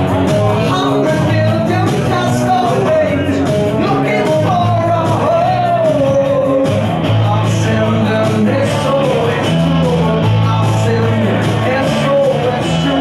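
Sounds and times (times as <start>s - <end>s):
electric bass low notes: 0.0s - 13.0s
electric guitar: 0.0s - 13.0s
man singing lead: 0.0s - 13.0s.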